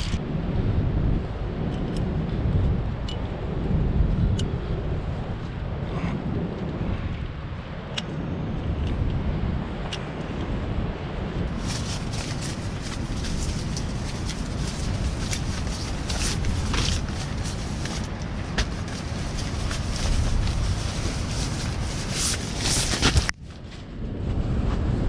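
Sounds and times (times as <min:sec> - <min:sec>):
wind on microphone: 0:00.0 - 0:25.0
nylon sacks rustling: 0:11.5 - 0:23.3.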